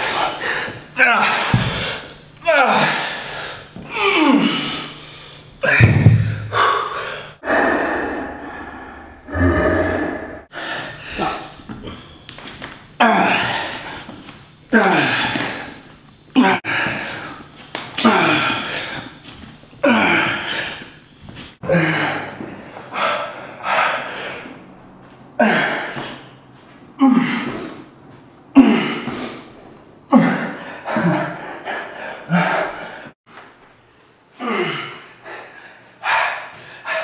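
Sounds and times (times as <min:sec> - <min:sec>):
man gasping and grunting: 0:00.0 - 0:05.0, 0:05.6 - 0:12.2, 0:13.0 - 0:14.1, 0:14.7 - 0:15.8, 0:18.0 - 0:19.2, 0:21.6 - 0:24.6, 0:25.4 - 0:26.3, 0:28.6 - 0:29.5, 0:30.1 - 0:33.1, 0:34.4 - 0:37.0.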